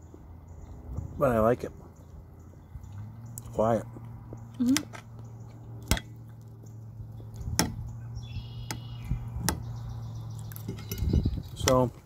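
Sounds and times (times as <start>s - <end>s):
faint high chirp: 7.9s - 11.5s
eating clicks and crunches: 10.3s - 12.0s.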